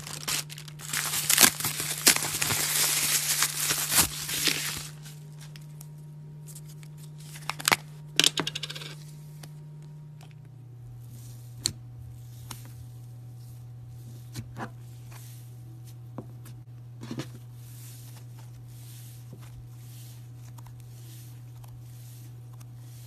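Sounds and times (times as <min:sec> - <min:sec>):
slime crinkly rustling: 0:00.0 - 0:05.6.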